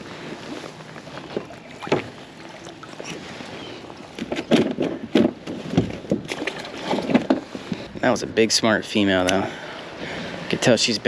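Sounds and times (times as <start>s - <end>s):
water sloshing around kayak: 0.0s - 8.0s
water splashes: 1.2s - 4.4s.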